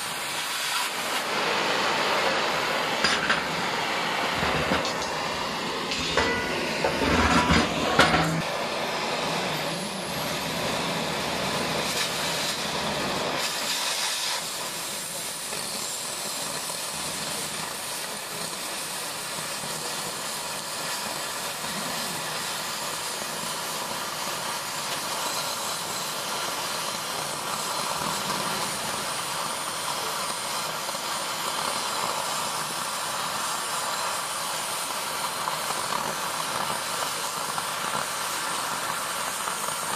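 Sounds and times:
cutting torch hissing: 0.0s - 39.9s
metal clanks: 5.9s - 8.4s.

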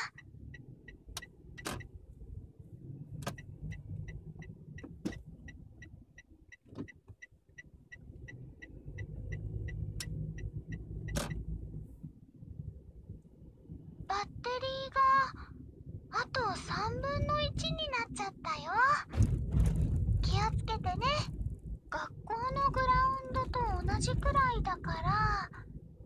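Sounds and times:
turn signal ticking: 0.0s - 14.7s
engine and road rumble: 0.0s - 26.0s.

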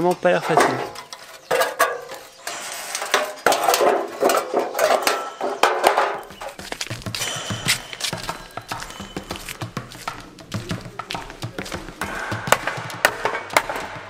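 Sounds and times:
sheet metal clanking and ringing: 0.0s - 6.6s, 7.2s - 10.3s.

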